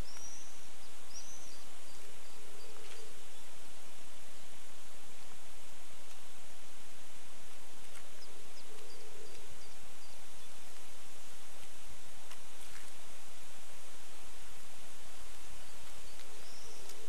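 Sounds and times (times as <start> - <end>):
small bird chirping: 0.0 - 4.6, 7.8 - 11.0, 15.2 - 17.0
sprinklers spraying water: 0.0 - 17.0.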